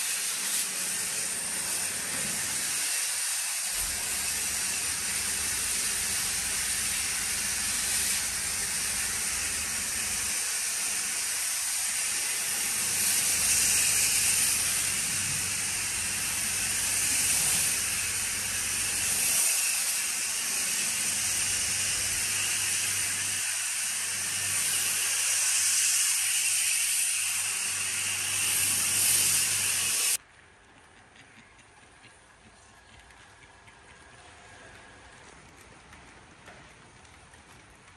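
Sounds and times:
pressure washer spraying foam: 0:00.0 - 0:30.2.

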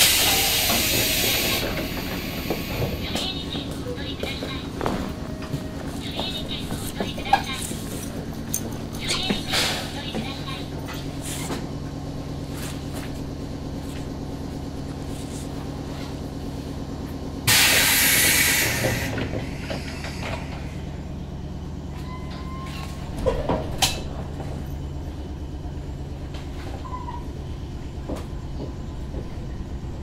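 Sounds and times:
train equipment humming: 0:00.0 - 0:30.0
compressed air hiss: 0:17.5 - 0:19.2
clunks: 0:21.9 - 0:24.7.

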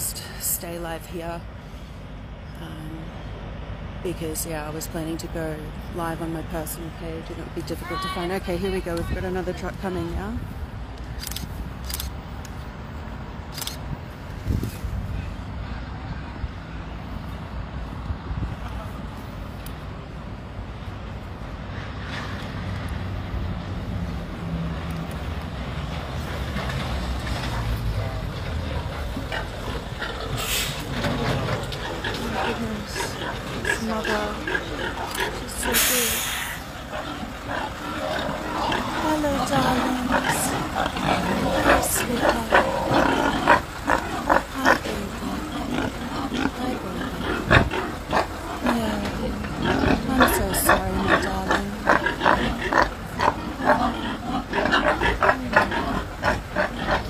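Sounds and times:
diesel truck driving past: 0:15.0 - 0:57.0
pigs grunting: 0:26.6 - 0:57.0.

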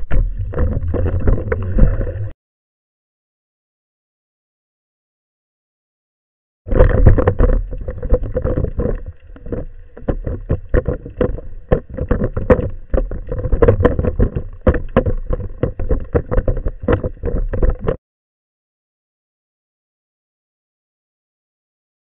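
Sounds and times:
water sloshing and splashing: 0:00.0 - 0:02.3, 0:06.7 - 0:18.0.

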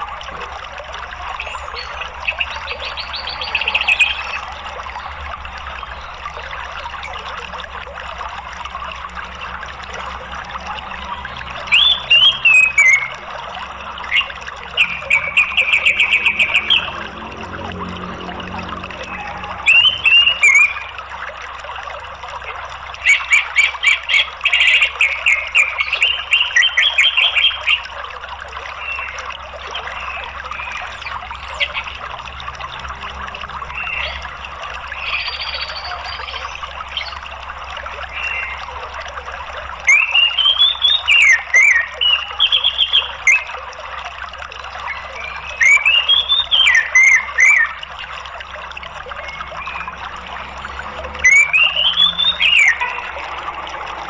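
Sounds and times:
running water: 0:00.0 - 0:54.0
bird singing: 0:01.2 - 0:04.8, 0:10.6 - 0:21.1, 0:23.0 - 0:28.0, 0:28.7 - 0:37.3, 0:39.8 - 0:43.5, 0:44.7 - 0:54.0.

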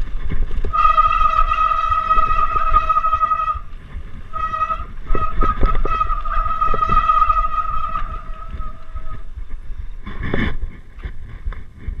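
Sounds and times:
bike disc brakes squealing: 0:00.7 - 0:03.7, 0:04.4 - 0:09.3.

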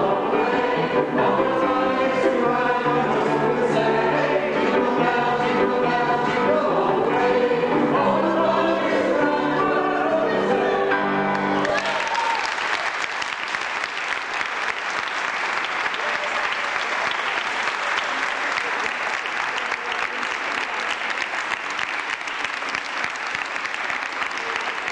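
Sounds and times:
audience applauding: 0:11.3 - 0:24.9.

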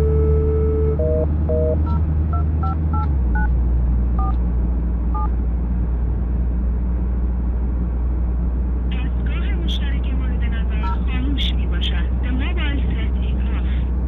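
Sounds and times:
car engine and road rumble: 0:00.0 - 0:14.0
phone keypad beeps: 0:00.1 - 0:02.0.

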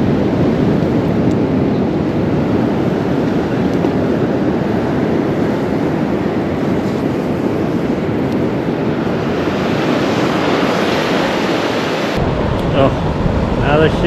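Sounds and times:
ocean surf breaking: 0:00.0 - 0:14.0
wind buffeting microphone: 0:00.0 - 0:14.0.

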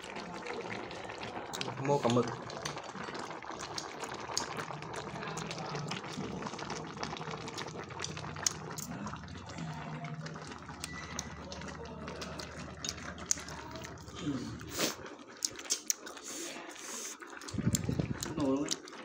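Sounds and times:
broth bubbling at a boil: 0:00.0 - 0:19.0
small pops and crackles: 0:01.5 - 0:08.9, 0:15.3 - 0:16.2, 0:17.3 - 0:19.0.

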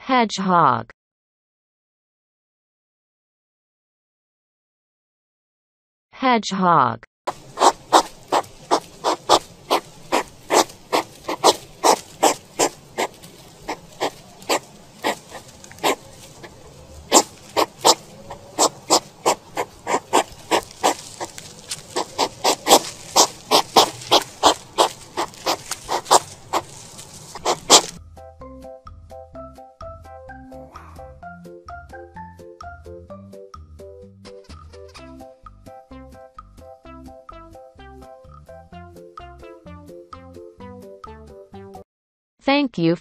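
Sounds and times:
hedgehog sniffing: 0:07.3 - 0:28.0.

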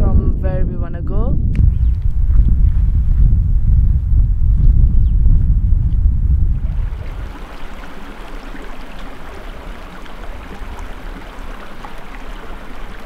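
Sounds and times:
stream running over rocks: 0:06.5 - 0:13.0.

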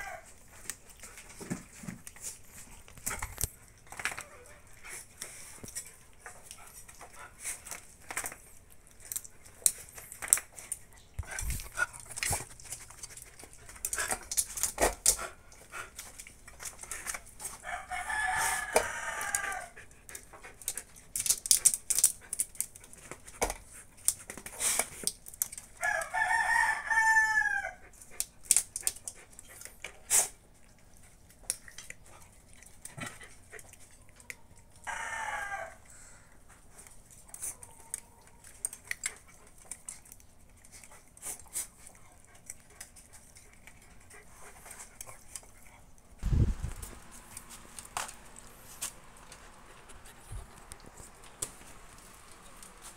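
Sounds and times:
rooster crowing: 0:00.0 - 0:00.3, 0:17.6 - 0:19.8, 0:25.8 - 0:27.8, 0:34.8 - 0:36.1.

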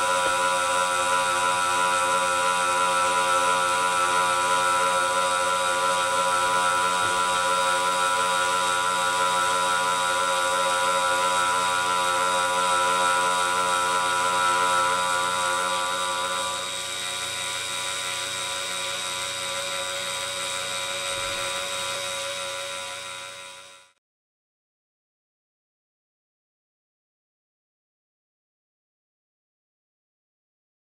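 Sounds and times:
cutter spinning with multi-tone whine: 0:00.0 - 0:24.0.

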